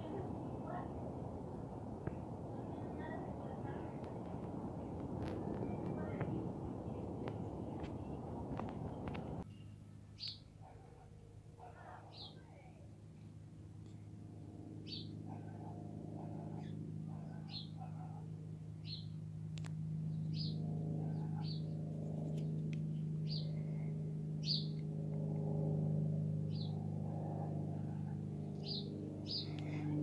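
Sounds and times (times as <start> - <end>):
steady low hum: 0.0 - 30.0
small bird chirping: 7.0 - 10.5, 14.9 - 15.2, 20.1 - 20.6, 23.3 - 23.6, 24.4 - 24.8, 28.6 - 29.8.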